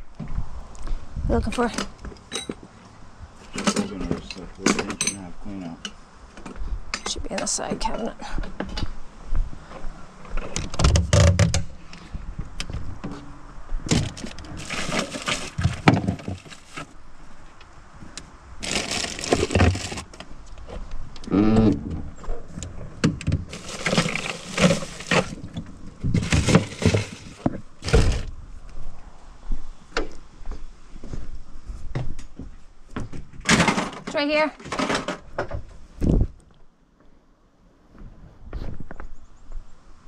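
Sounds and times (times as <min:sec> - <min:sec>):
tools clanking and rattling: 0:01.7 - 0:02.6, 0:03.4 - 0:05.3, 0:13.9 - 0:16.9, 0:23.1 - 0:28.3, 0:33.4 - 0:35.3.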